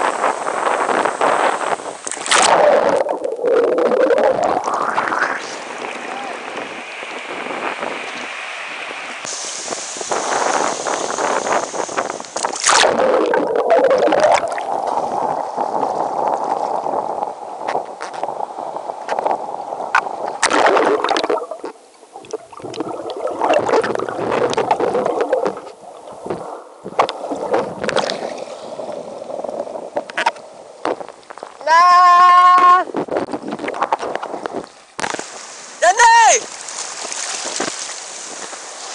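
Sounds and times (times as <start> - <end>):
ocean water sloshing and splashing: 0.0 - 31.6, 32.6 - 35.8, 36.4 - 38.9.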